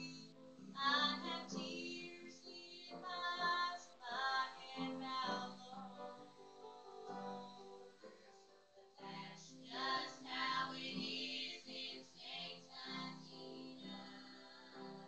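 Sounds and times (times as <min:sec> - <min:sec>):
girls singing slow song: 0:00.0 - 0:15.0.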